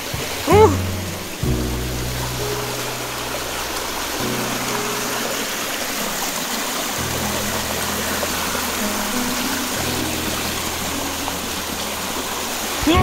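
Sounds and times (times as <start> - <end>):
stream rushing over rocks: 0.0 - 13.0
background music with bass notes: 0.1 - 4.4.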